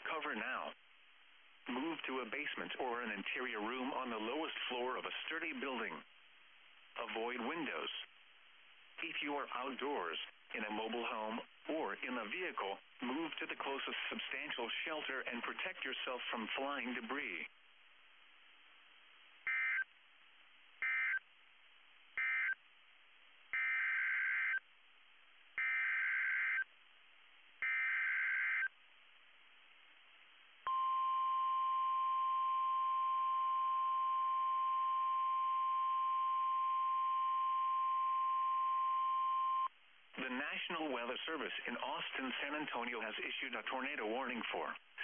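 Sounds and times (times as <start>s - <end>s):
steady warning alarm tone: 19.5s - 19.8s, 20.8s - 21.2s, 22.2s - 22.6s, 23.6s - 24.6s, 25.6s - 26.6s, 27.6s - 28.7s, 30.7s - 39.7s.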